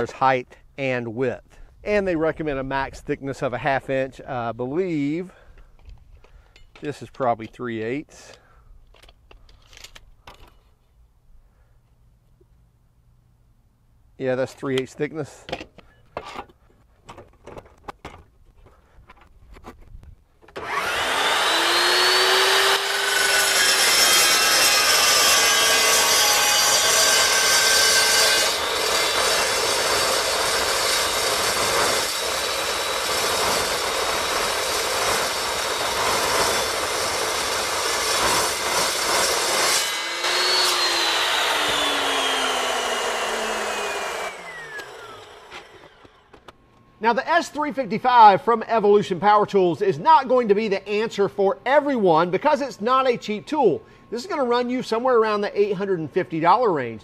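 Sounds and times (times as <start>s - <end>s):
saw cutting steel: 20.6s - 46.3s.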